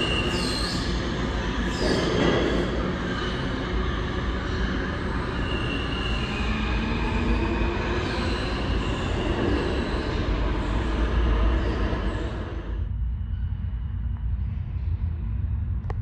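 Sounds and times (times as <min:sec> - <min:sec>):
high wheel squeal: 0:00.0 - 0:12.8
subway train wheels rumbling: 0:00.0 - 0:16.0.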